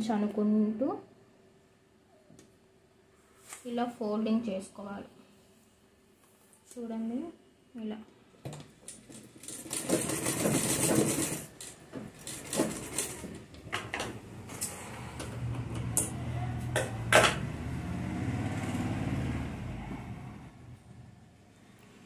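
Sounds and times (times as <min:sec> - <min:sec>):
sewing machine stitching: 0:09.2 - 0:13.5.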